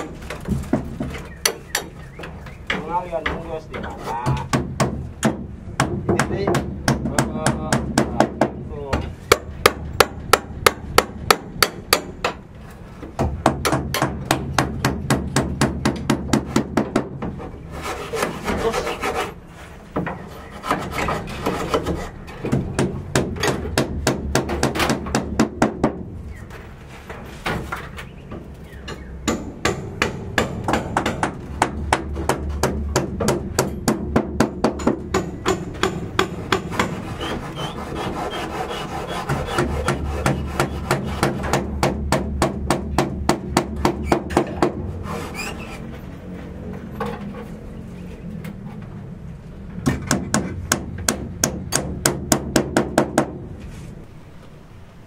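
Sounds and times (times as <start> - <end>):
hammer striking wood: 0.0 - 12.4, 13.0 - 17.4, 21.4 - 26.1, 28.9 - 44.8, 49.8 - 53.5.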